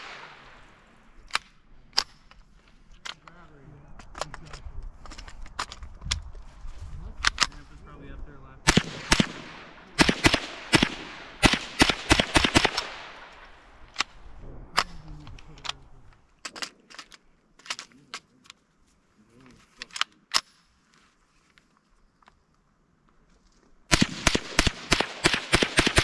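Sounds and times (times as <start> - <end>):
rifle shots: 0.0 - 2.2, 8.6 - 15.0, 23.9 - 26.0.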